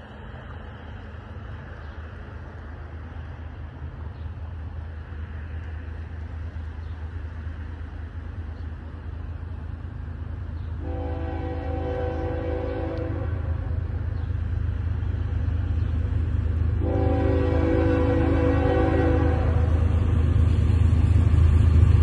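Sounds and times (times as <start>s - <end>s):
freight train rumble: 0.0s - 22.0s
locomotive air horn: 10.8s - 13.8s, 16.8s - 19.8s.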